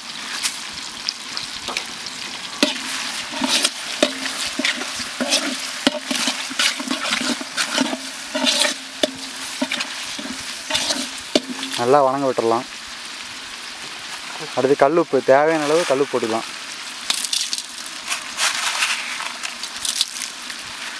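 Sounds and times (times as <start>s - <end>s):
food sizzling in oil: 0.0s - 20.9s
metal ladle scraping pot: 2.6s - 11.9s.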